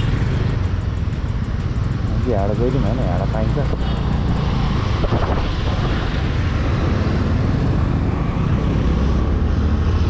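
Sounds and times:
scooter engine running: 0.0s - 5.0s
traffic rumble: 0.0s - 10.0s
wind buffeting microphone: 3.4s - 9.4s.

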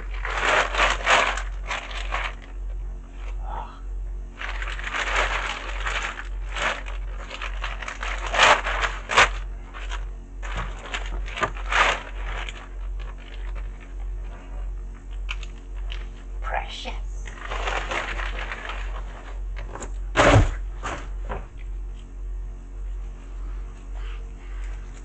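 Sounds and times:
plastic bag crinkling: 0.0s - 2.7s, 4.3s - 16.1s, 17.2s - 19.8s
steady low hum: 0.0s - 25.0s.

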